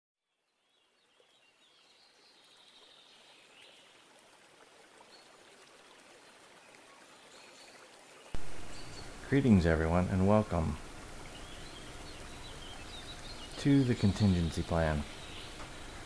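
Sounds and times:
faint hiss: 6.7s - 16.0s.

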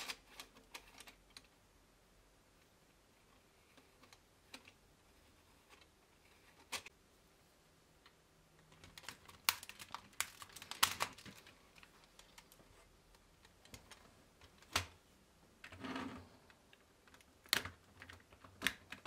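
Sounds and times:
plastic parts clicking together: 16.7s - 19.0s.

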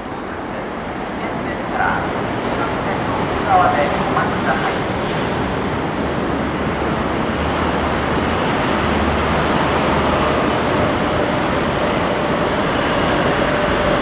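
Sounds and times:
electric train rumble: 0.0s - 14.0s.

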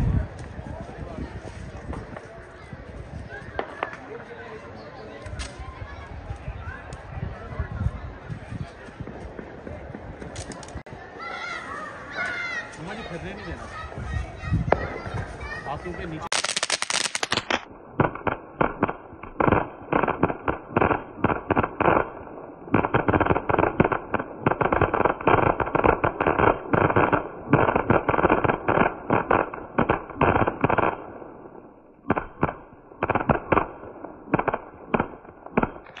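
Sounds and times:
fireworks crackling pops: 0.0s - 7.2s, 8.4s - 10.9s, 12.2s - 36.0s
fireworks spraying hiss: 16.0s - 17.7s.

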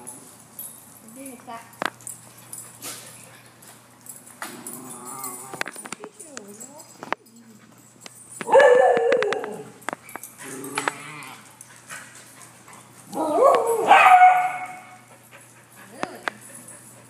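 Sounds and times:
dogs barking and howling: 8.4s - 9.8s, 13.1s - 14.9s.

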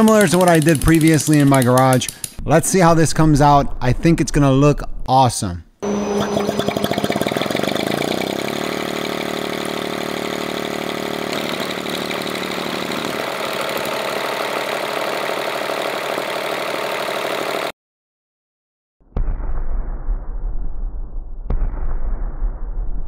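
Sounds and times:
rotary engine running: 5.8s - 17.7s.

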